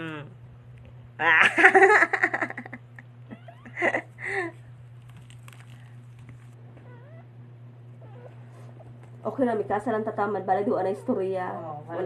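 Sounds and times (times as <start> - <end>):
low hum: 0.0 - 12.0
puppies squeaking: 8.0 - 8.6.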